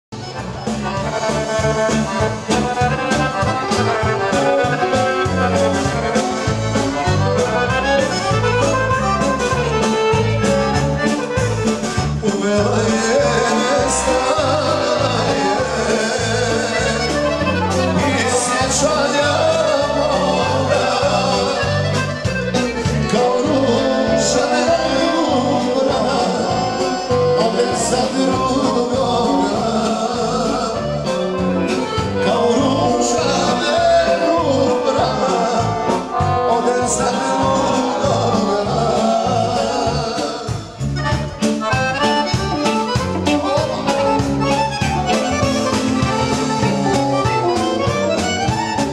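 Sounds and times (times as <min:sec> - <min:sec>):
accordion band music: 0:00.1 - 0:48.9
steady bass beat: 0:00.2 - 0:48.9
person singing: 0:12.2 - 0:22.1, 0:22.9 - 0:40.9, 0:43.2 - 0:47.0.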